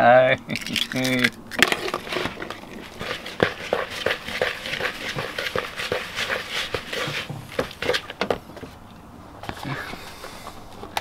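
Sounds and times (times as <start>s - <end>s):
spoon scraping a plastic bowl: 1.6s - 8.1s.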